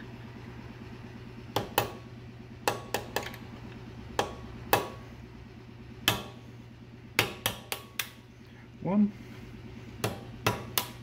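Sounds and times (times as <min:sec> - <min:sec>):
hammer tapping metal punch: 0:01.5 - 0:02.0, 0:02.6 - 0:03.4, 0:04.2 - 0:05.0, 0:06.0 - 0:06.4, 0:07.2 - 0:08.2, 0:10.0 - 0:11.0.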